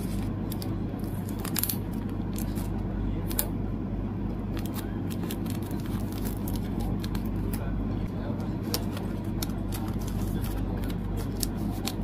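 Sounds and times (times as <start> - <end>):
steady low hum: 0.0 - 12.0
plastic sleeves crinkling: 4.6 - 7.6, 8.6 - 12.0.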